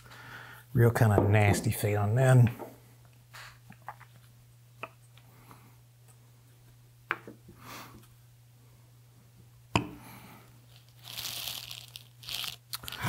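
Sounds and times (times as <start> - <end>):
foam tearing and crumbling: 10.9 - 13.0.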